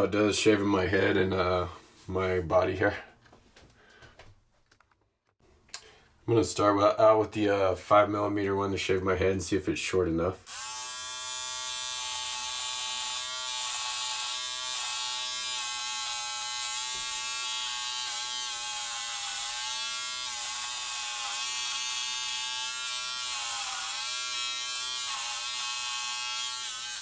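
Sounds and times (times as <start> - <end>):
electric hair trimmer buzzing: 10.5 - 27.0.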